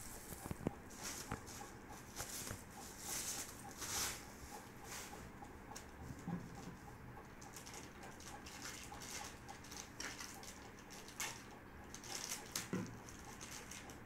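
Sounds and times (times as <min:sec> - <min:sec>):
hands rustling packaging: 0:07.5 - 0:14.0.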